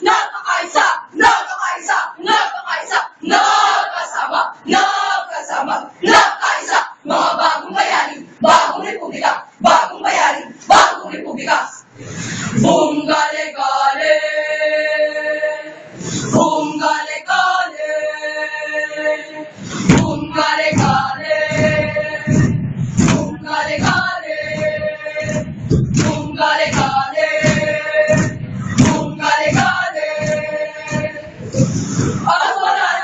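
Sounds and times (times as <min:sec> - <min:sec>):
choir singing held notes: 0:00.0 - 0:33.0
heavy pulsing beat: 0:19.8 - 0:32.4.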